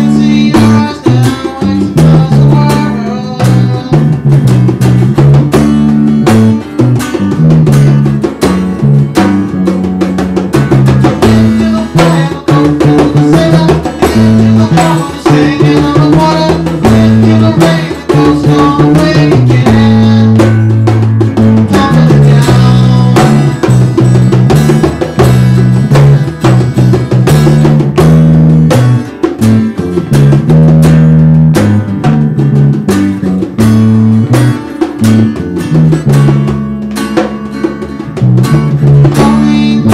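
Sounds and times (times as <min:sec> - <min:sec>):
man singing: 0:00.0 - 0:04.2, 0:11.1 - 0:20.8, 0:21.4 - 0:23.7, 0:38.8 - 0:39.9
electric bass guitar: 0:00.0 - 0:39.9
hand drum: 0:00.0 - 0:39.9
strummed acoustic guitar: 0:00.0 - 0:39.9.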